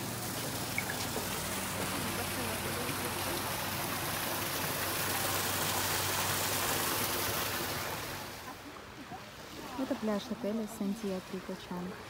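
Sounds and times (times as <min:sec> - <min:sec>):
fountain water splashing into pool: 0:00.0 - 0:12.0.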